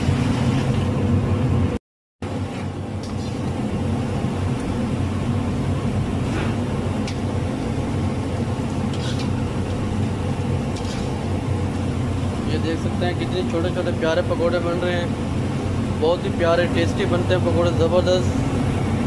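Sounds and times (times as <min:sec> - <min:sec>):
food sizzling in hot oil: 0:10.5 - 0:11.7.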